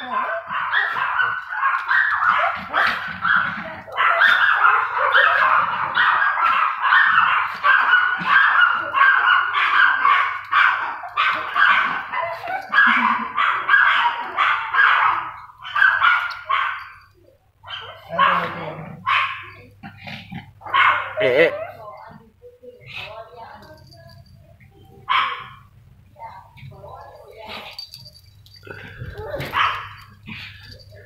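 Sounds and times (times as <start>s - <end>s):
small dog yapping: 28.7s - 30.4s.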